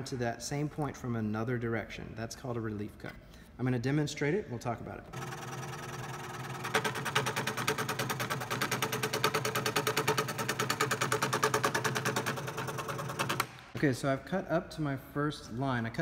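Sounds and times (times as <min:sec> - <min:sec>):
scroll saw motor hum: 0:05.1 - 0:13.5.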